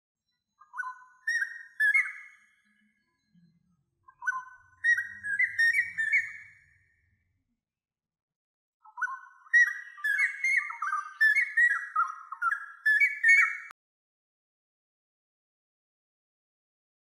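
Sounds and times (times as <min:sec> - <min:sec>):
whistled melody: 0:00.5 - 0:03.5, 0:04.1 - 0:06.8, 0:08.8 - 0:13.7.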